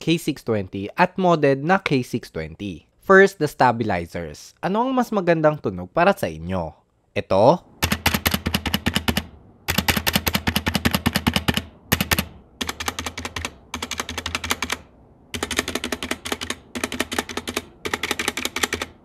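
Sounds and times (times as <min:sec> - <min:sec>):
mechanical keyboard keys clacking: 0:07.8 - 0:19.0.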